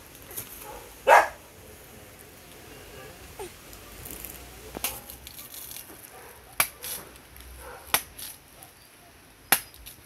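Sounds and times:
machete chopping coconut: 6.6 - 6.8, 7.9 - 8.3, 9.5 - 10.0.

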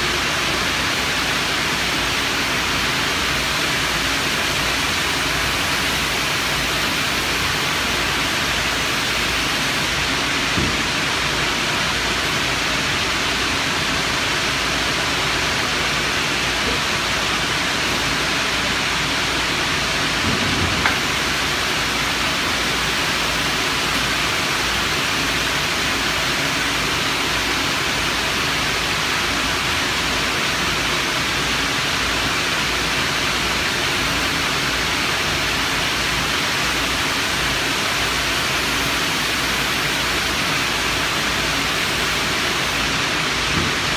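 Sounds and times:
industrial machinery roar: 0.0 - 27.5
short knock: 20.2 - 21.2.

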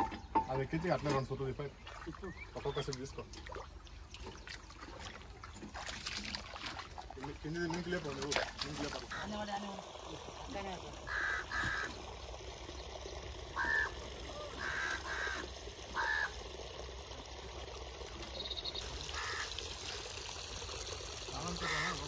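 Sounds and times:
bird harsh calls: 11.1 - 12.1.

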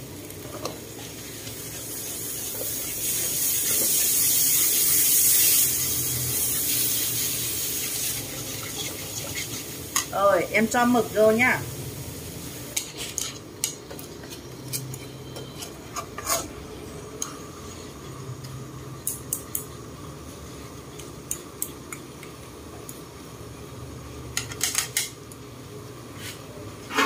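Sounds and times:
utensils scraping a metal wok: 0.6 - 10.1, 12.7 - 16.6.

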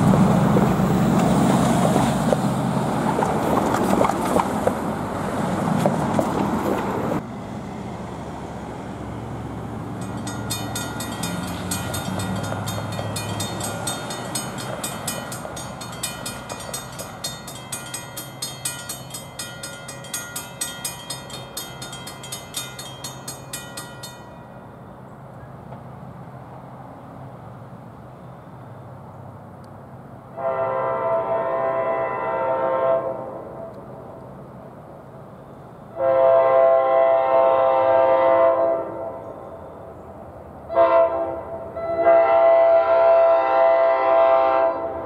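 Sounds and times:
road traffic rumble: 0.0 - 45.0
crossing warning bell ringing: 9.8 - 25.2.

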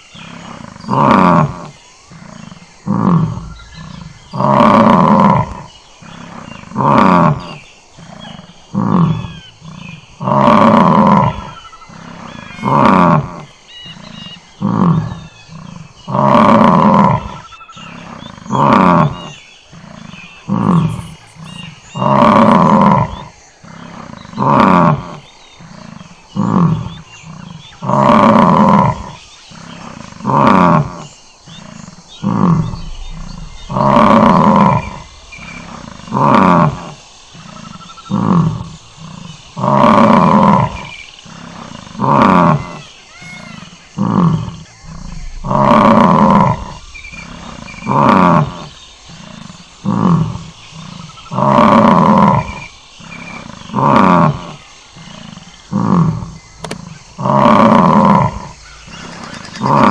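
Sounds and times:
bison bellowing: 14.1 - 59.9.

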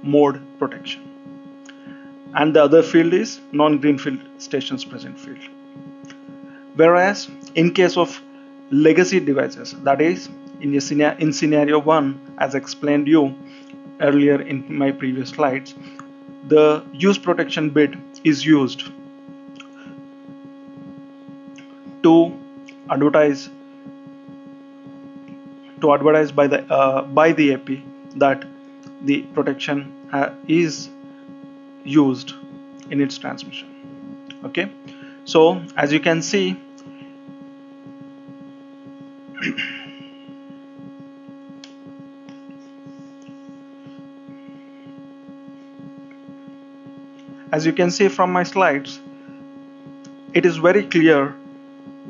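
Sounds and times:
man's voice: 0.0 - 1.0, 2.4 - 5.4, 6.8 - 8.2, 8.8 - 13.4, 14.0 - 15.8, 16.5 - 18.9, 22.0 - 23.5, 25.8 - 28.4, 29.1 - 30.9, 31.9 - 33.6, 35.3 - 36.6, 47.5 - 49.0, 50.4 - 51.4
electrical hum: 0.0 - 52.0.

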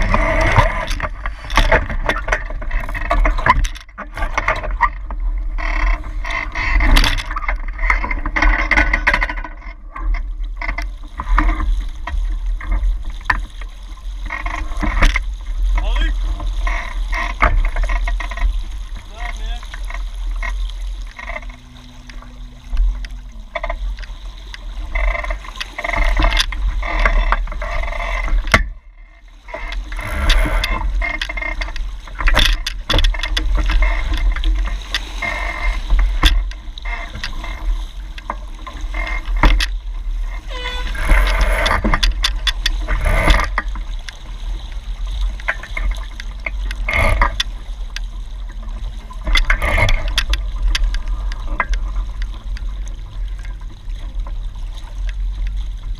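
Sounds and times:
water splashing against hull: 0.0 - 55.9.

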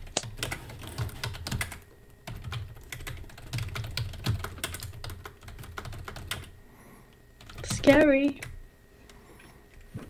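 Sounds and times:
typing on a computer keyboard: 0.0 - 6.5, 7.4 - 8.6.

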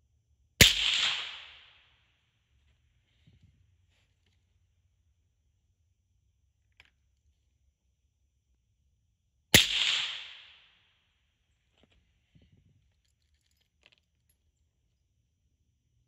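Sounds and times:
rifle shot: 0.6 - 1.9, 9.5 - 10.8.

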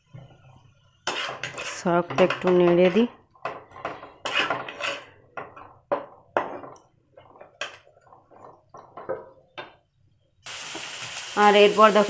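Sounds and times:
spatula scraping a pan: 1.0 - 9.4.

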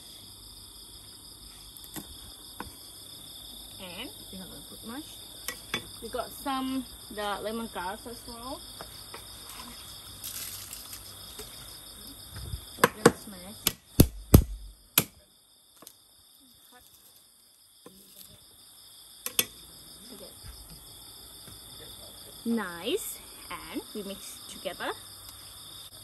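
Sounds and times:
night insects chirring: 0.0 - 26.0
cleaver chopping on block: 12.8 - 15.2.

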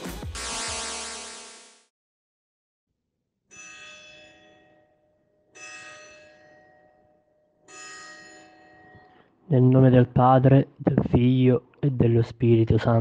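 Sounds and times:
electronic music: 0.0 - 1.8.

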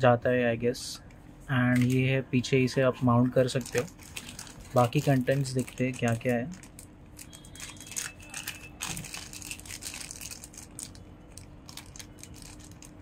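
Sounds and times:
plastic bag crinkling: 1.7 - 2.1, 3.3 - 13.0.

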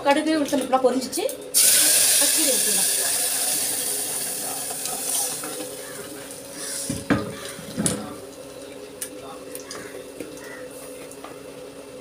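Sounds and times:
hot oil sizzling in a pot: 1.5 - 7.5.

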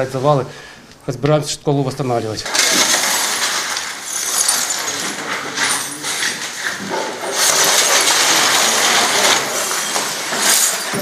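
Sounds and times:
debris scraping along floor: 2.4 - 11.0
glass and rubble crunching: 2.5 - 11.0.

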